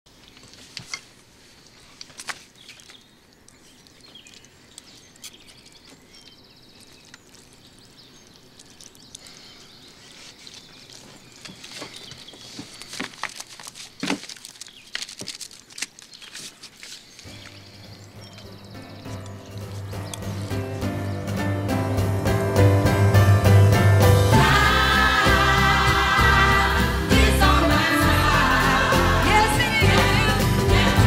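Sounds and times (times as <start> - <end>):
paper rustling and crinkling: 0.2 - 6.0, 8.6 - 17.6
faint bird chirps: 2.5 - 12.9
paper tearing: 12.6 - 17.3.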